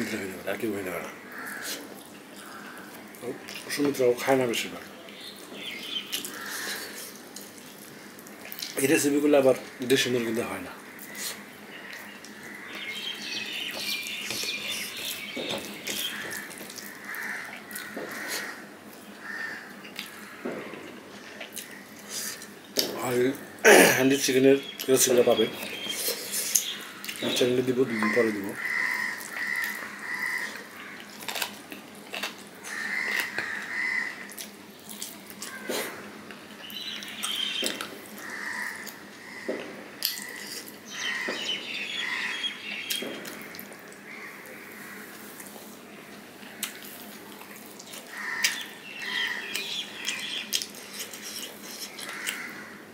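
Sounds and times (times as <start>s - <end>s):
mouth chewing and smacking: 34.2s - 37.9s, 46.5s - 48.7s, 49.4s - 52.4s.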